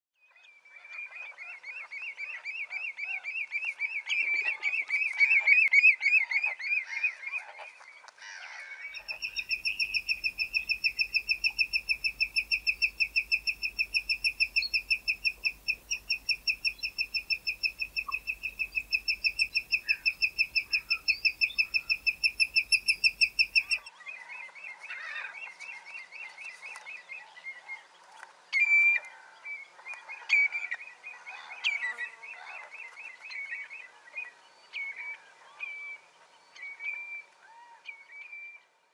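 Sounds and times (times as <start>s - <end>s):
redshank piping song: 8.9s - 24.0s.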